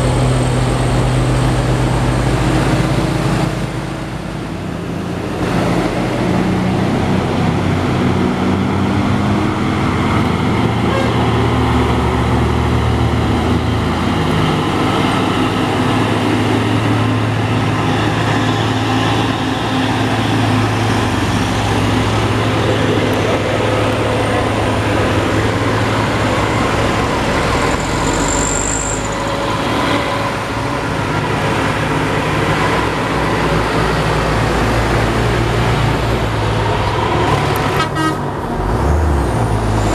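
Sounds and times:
cars passing: 0:00.0 - 0:39.9
heavy truck diesel engines: 0:00.0 - 0:39.9
brief high squeal: 0:27.6 - 0:29.3.

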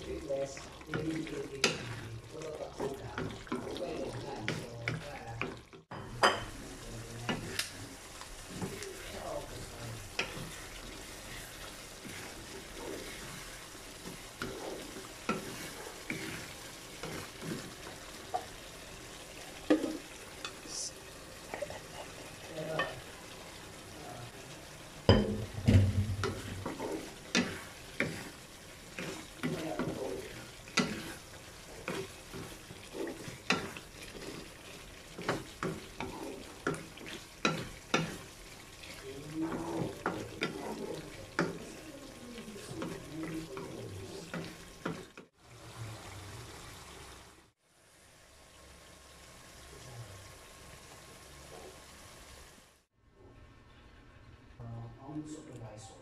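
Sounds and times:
wooden spatula scraping a wok: 0:00.0 - 0:20.6, 0:25.4 - 0:45.4
sauce sizzling: 0:00.0 - 0:53.0.

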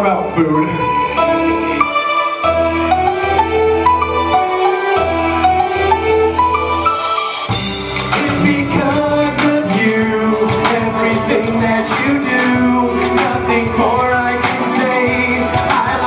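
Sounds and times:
hip hop beat over loudspeaker: 0:06.6 - 0:16.0
men rapping into microphones: 0:08.2 - 0:16.0.

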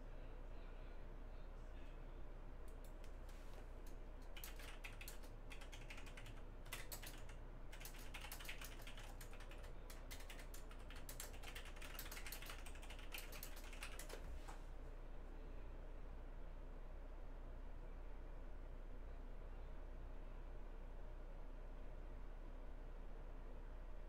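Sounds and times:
typing on computer keyboard: 0:04.2 - 0:14.3.

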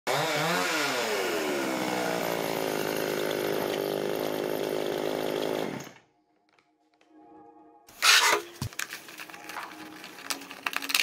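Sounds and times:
chainsaw engine at high revs: 0:00.0 - 0:06.0.

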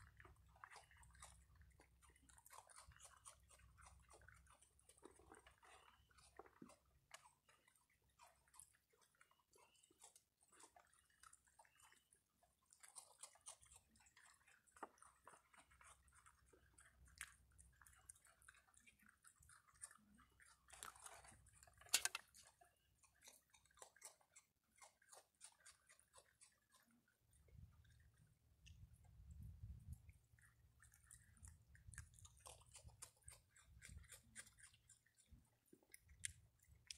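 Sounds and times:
animal chewing and crunching food: 0:00.0 - 0:36.9.

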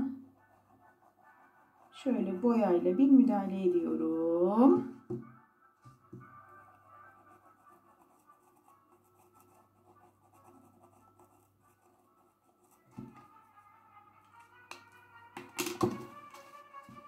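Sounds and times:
soft knock: 0:05.1 - 0:05.4, 0:12.9 - 0:13.3.

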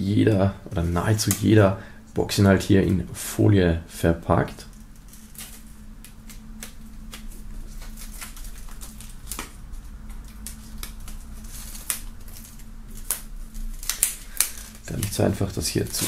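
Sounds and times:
faint steady hum: 0:00.0 - 0:16.0
plastic shrink-wrap crinkling: 0:04.6 - 0:16.0
knife slitting plastic wrap: 0:10.2 - 0:16.0.

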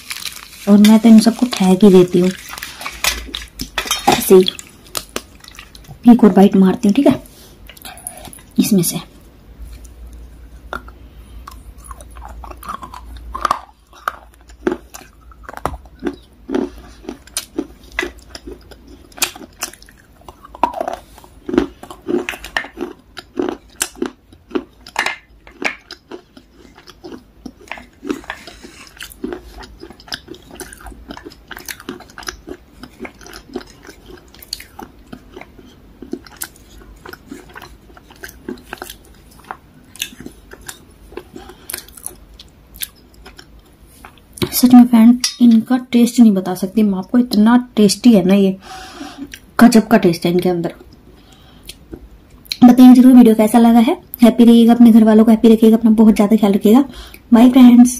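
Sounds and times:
wet chewing of clay: 0:00.0 - 0:06.0, 0:09.6 - 0:44.5.

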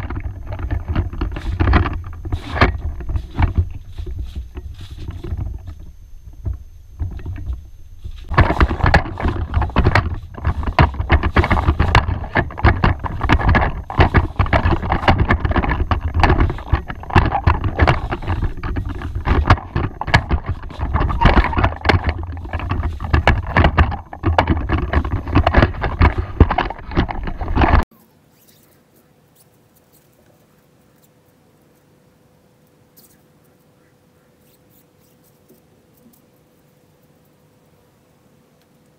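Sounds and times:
tent fabric rustling and flapping: 0:01.3 - 0:05.9.

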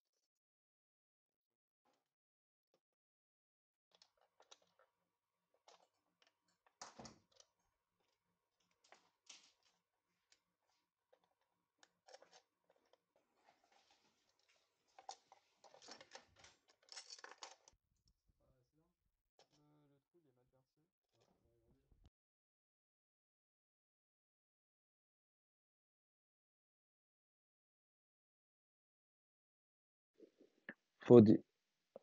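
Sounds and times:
small hardware clicking and rattling: 0:14.4 - 0:17.8.

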